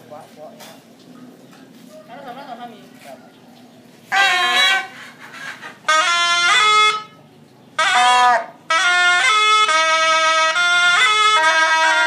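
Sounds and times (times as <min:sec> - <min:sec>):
shawms playing shrill phrases: 0:04.1 - 0:12.0.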